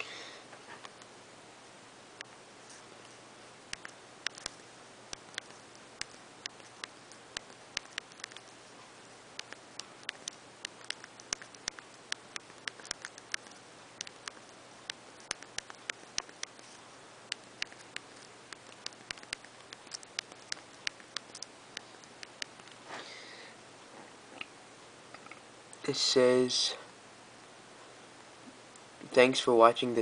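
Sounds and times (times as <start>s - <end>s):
phone keyboard keys clicking: 5.2s - 8.5s.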